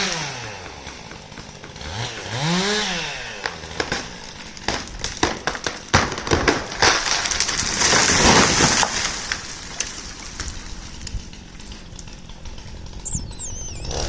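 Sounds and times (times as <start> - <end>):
tree crashing to the ground: 2.5 - 13.0
wood cracking and snapping: 3.4 - 13.1.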